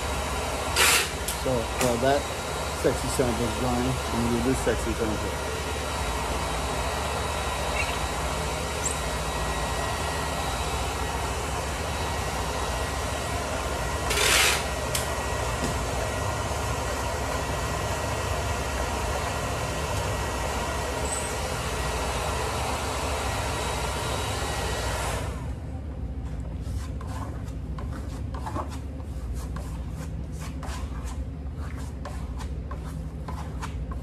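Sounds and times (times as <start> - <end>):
hair dryer running: 0.0 - 25.7.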